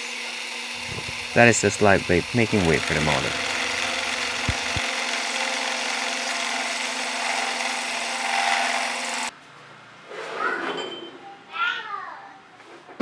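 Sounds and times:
drill press motor hum: 0.0 - 9.3
end mill cutting metal: 0.2 - 9.3.

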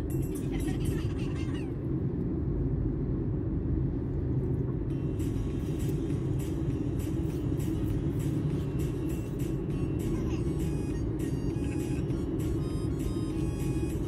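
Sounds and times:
car engine and road rumble: 0.0 - 14.0.

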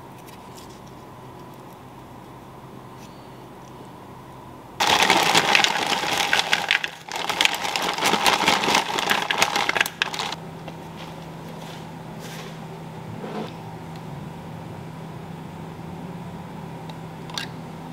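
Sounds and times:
low steady hum: 0.0 - 17.9
fries clattering on metal tray: 4.8 - 10.4
plastic bag crinkling: 4.8 - 10.4.

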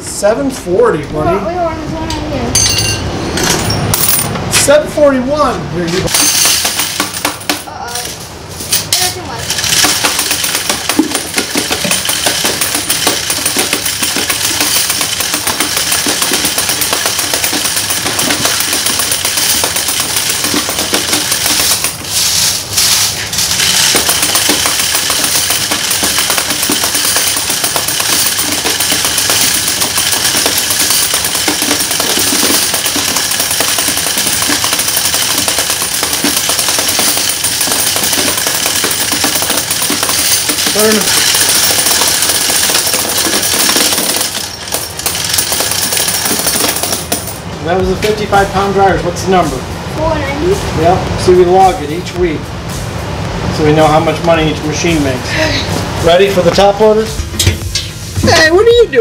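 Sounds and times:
coin counter clattering: 2.6 - 4.3, 6.1 - 47.5.

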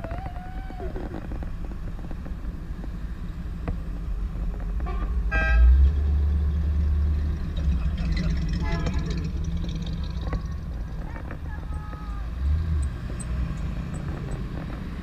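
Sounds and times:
car engines rumbling: 0.0 - 15.0
car horn toot: 4.8 - 5.8, 8.5 - 9.3.

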